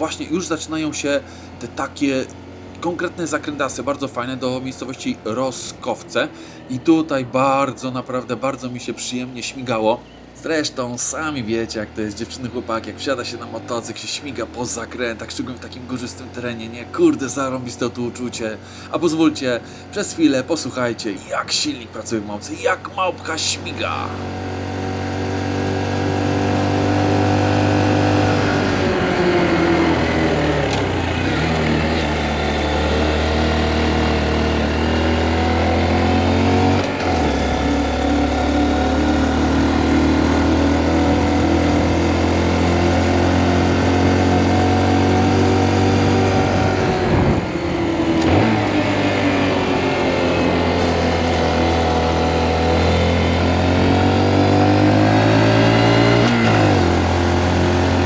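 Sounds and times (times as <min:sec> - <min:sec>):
motorcycle engine running under load: 0:23.8 - 0:58.0.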